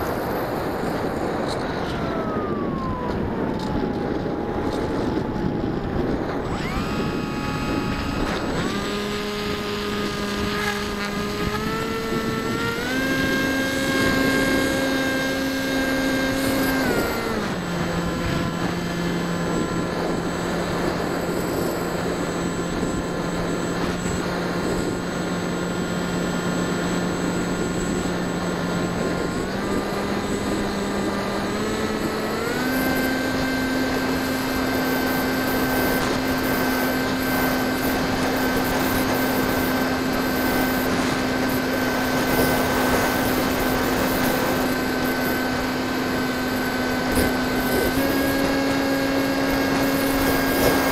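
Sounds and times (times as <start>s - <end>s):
electric motor and propeller whining: 0.0s - 50.9s.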